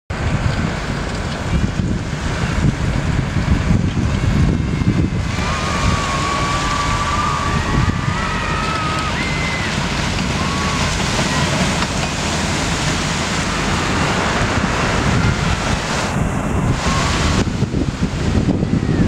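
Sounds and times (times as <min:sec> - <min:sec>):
wind buffeting microphone: 0:00.1 - 0:19.0
high wavering whistling: 0:04.8 - 0:11.5.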